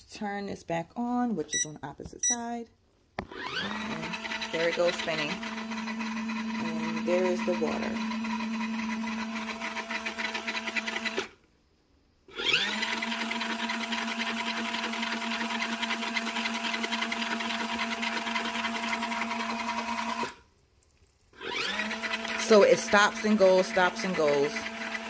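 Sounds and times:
spin-dryer motor humming: 0:03.2 - 0:11.3, 0:12.5 - 0:20.4, 0:21.4 - 0:25.0.

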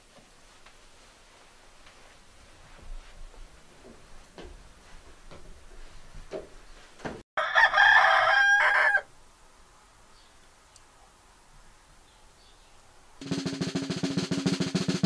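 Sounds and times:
rooster crowing: 0:07.4 - 0:09.1.

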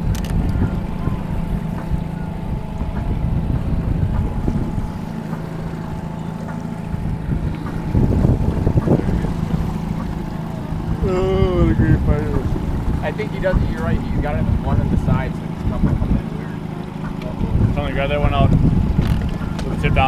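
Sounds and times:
outboard motor running: 0:00.0 - 0:20.0
water splashing: 0:00.0 - 0:20.0
wind on microphone: 0:00.0 - 0:20.0.

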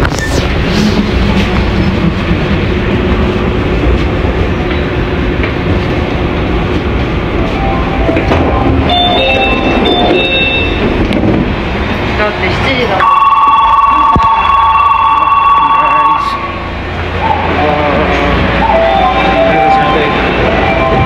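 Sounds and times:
train rumble: 0:00.0 - 0:21.0
high tones: 0:07.5 - 0:10.9.

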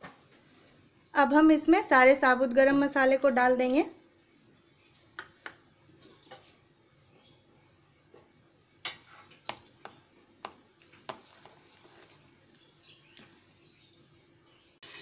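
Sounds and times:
spatula stirring spices clicks: 0:08.8 - 0:13.3.

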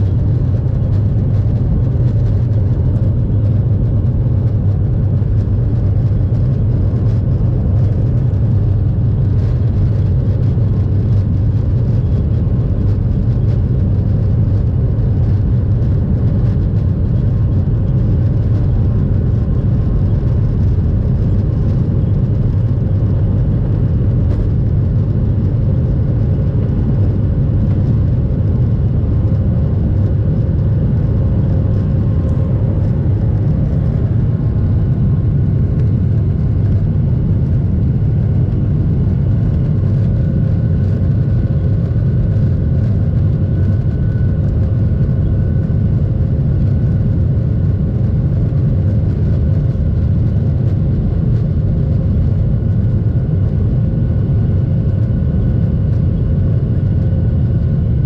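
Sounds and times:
jet engines deep rumble: 0:00.0 - 0:58.0.

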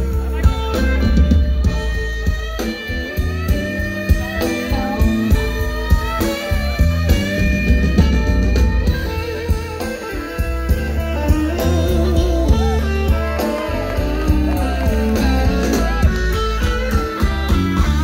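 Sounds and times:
blues band playing: 0:00.0 - 0:18.0
electric guitar bent notes: 0:00.0 - 0:18.0
harmonica: 0:00.0 - 0:18.0.

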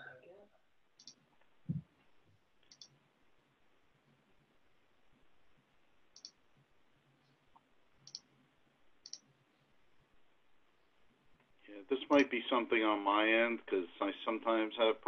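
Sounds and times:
computer mouse clicks: 0:01.0 - 0:01.2, 0:02.6 - 0:03.0, 0:06.1 - 0:06.4, 0:07.5 - 0:08.3, 0:09.0 - 0:09.3.

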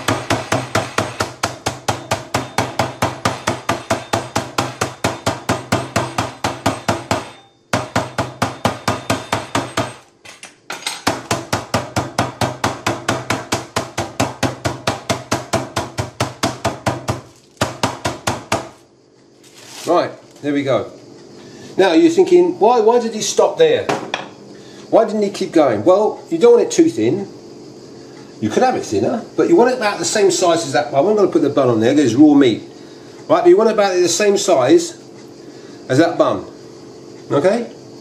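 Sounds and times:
wooden mallet pounding meat: 0:00.0 - 0:10.0, 0:11.0 - 0:18.8.

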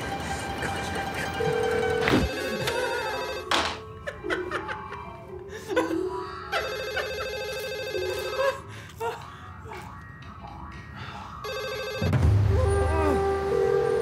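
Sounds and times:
telephone ringing: 0:01.4 - 0:03.9, 0:06.6 - 0:08.7, 0:11.4 - 0:12.4
man laughing: 0:04.0 - 0:07.2.

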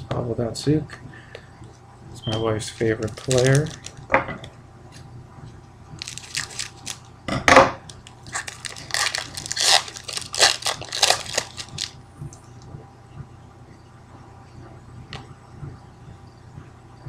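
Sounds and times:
wrapper being torn and crinkled: 0:02.7 - 0:04.0, 0:06.0 - 0:07.0, 0:07.9 - 0:12.0.

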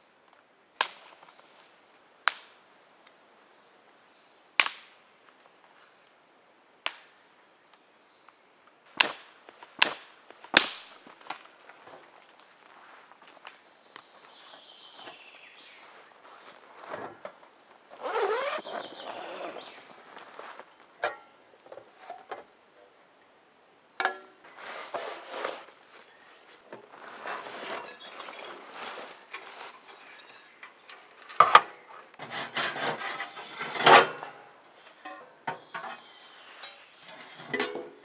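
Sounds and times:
rustling: 0:14.3 - 0:20.9, 0:24.4 - 0:38.0
metal stove parts clanking: 0:27.3 - 0:28.5, 0:36.6 - 0:38.0.

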